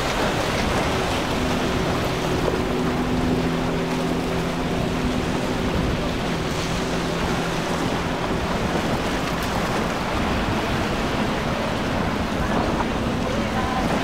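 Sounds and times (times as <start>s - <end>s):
outboard motors droning: 0.0s - 14.0s
surf rushing: 0.0s - 14.0s
wind on microphone: 0.0s - 14.0s.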